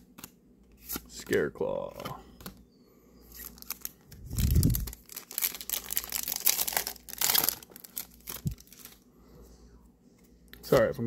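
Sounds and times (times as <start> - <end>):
foil wrapper crinkling: 3.4 - 9.0.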